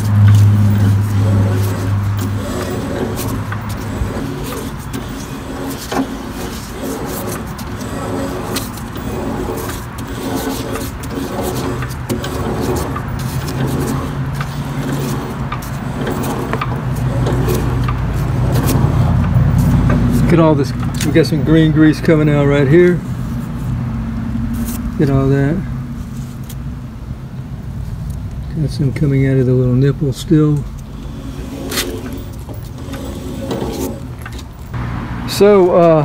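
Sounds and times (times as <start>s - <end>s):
motor humming: 0.0s - 20.0s, 30.8s - 34.8s.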